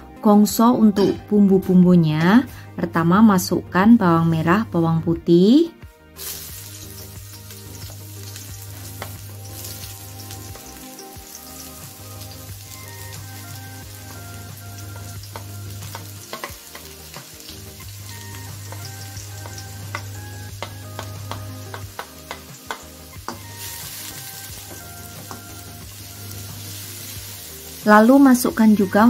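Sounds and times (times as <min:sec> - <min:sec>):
shallots and garlic sizzling: 0:06.2 - 0:29.0.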